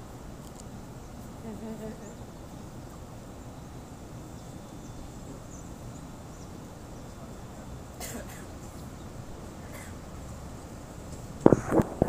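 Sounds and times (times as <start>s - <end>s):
low outdoor rumble: 0.0s - 12.0s
faint high chirps: 1.0s - 10.1s.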